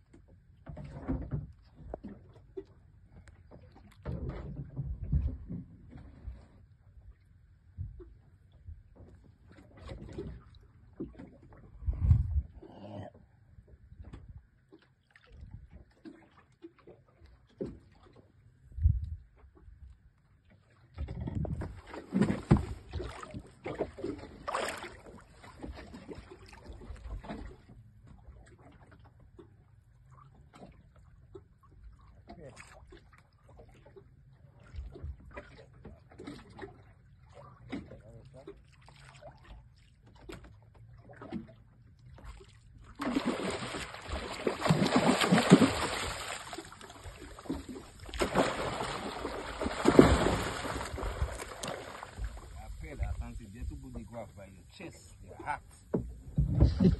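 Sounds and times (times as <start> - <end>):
water sloshing against boat hull: 0.0 - 56.9
sharp knocks on boat: 21.1 - 23.9, 55.8 - 56.9
fish thrashing and splashing: 21.6 - 27.6, 42.4 - 52.6
rush of water: 43.0 - 55.6.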